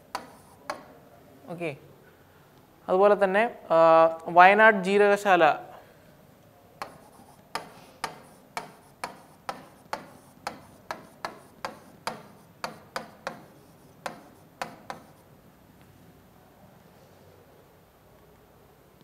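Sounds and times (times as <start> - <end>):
marker tapping on whiteboard: 0.0 - 1.0, 6.8 - 15.3.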